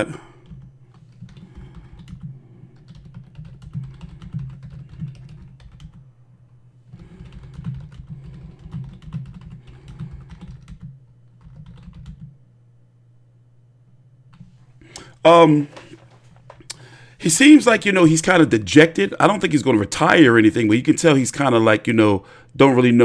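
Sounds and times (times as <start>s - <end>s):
low hum: 0.0s - 20.4s
typing on a keyboard: 0.4s - 6.0s, 7.0s - 12.3s.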